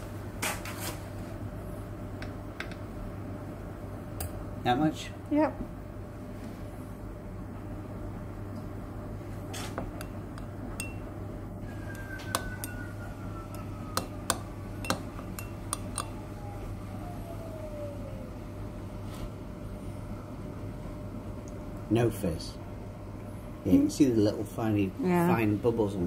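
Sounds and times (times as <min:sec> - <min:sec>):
metal spoon clinking against glass: 0:10.8 - 0:11.0, 0:12.3 - 0:12.8, 0:14.8 - 0:16.1.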